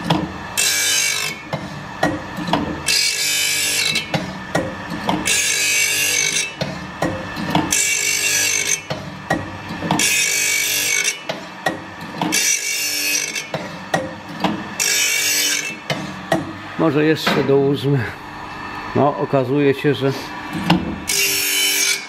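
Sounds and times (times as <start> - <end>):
short mechanical knocks: 20.6 - 21.0
hissing grind of saw blade: 21.1 - 22.0.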